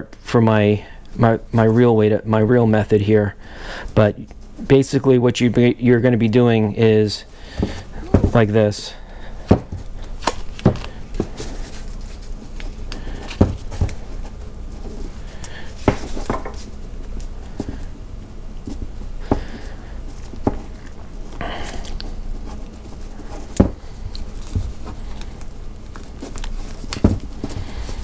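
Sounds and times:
soft rustling: 0:07.1 - 0:28.0.

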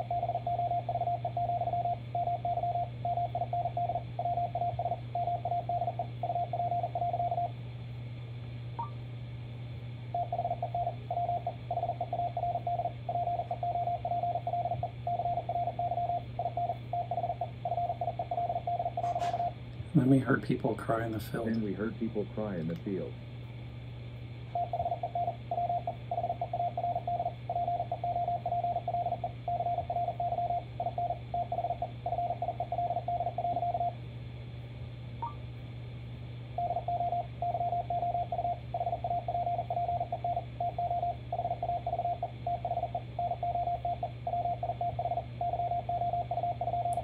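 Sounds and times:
steady low hum: 0:00.0 - 0:47.0
morse code tone: 0:10.2 - 0:19.5.

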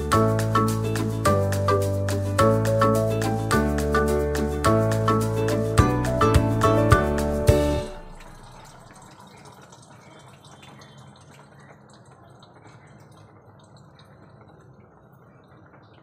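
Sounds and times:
soup bubbling in a pan: 0:08.0 - 0:16.0.

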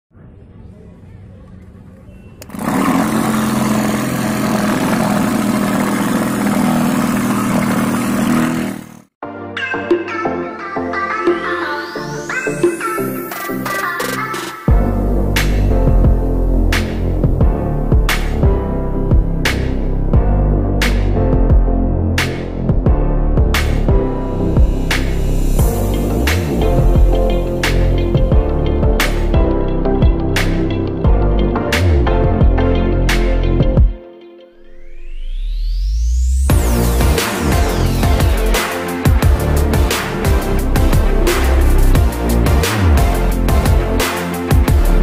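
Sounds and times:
model engine humming: 0:02.4 - 0:09.1
electronic music with beat: 0:22.2 - 0:34.0, 0:36.3 - 0:45.0.

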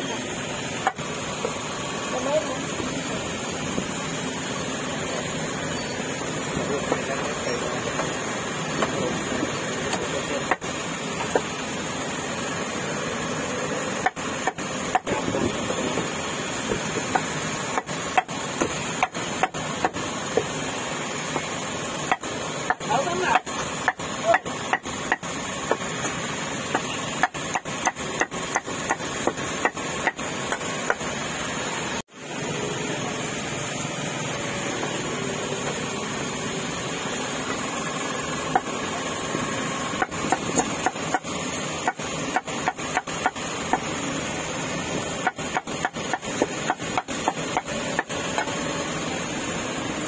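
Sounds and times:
cleaver chopping meat: 0:14.0 - 0:15.4, 0:16.7 - 0:20.5, 0:21.3 - 0:31.0, 0:40.0 - 0:43.9, 0:45.2 - 0:48.6.

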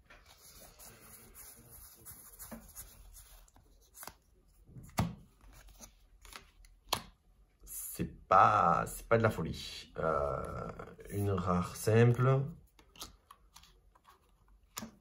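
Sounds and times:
cards rustling: 0:00.1 - 0:07.1, 0:11.1 - 0:15.0.

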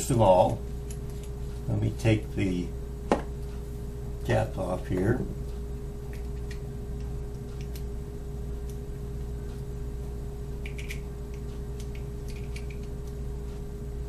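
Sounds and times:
steady hum: 0:00.0 - 0:14.0
small metal parts clicking: 0:10.6 - 0:11.0, 0:11.8 - 0:13.0.

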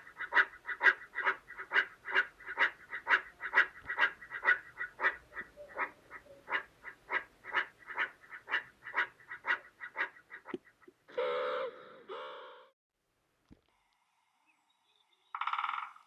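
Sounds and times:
meerkats chirping: 0:00.0 - 0:10.8.

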